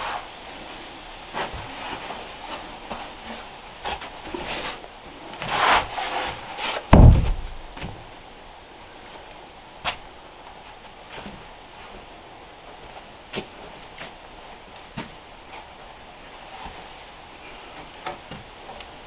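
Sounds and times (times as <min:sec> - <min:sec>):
wood knocking and scraping: 0:06.6 - 0:08.0
sharp wooden knock: 0:06.9 - 0:07.7
deep thud of plank set down: 0:06.9 - 0:08.0.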